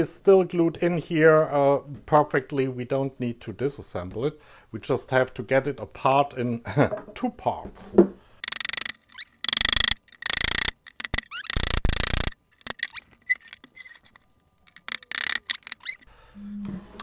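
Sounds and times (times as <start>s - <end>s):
wooden chair joints creaking: 8.4s - 16.1s.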